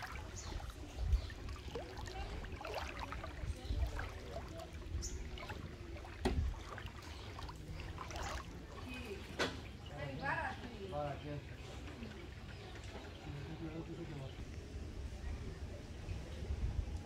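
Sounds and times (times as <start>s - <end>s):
low uneven rumble: 0.0s - 10.9s, 11.5s - 17.0s
water lapping against boat: 0.0s - 13.6s.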